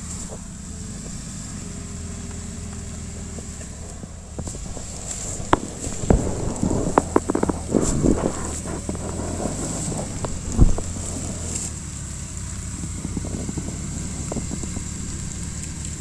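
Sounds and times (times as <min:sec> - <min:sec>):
engine idling: 0:00.0 - 0:16.0
clicks and crackles: 0:02.1 - 0:16.0
loud thump: 0:04.1 - 0:11.7.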